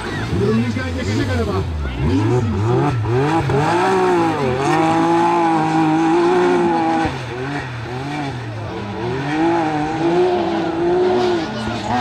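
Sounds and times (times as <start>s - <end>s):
race car engine revving: 0.0s - 12.0s.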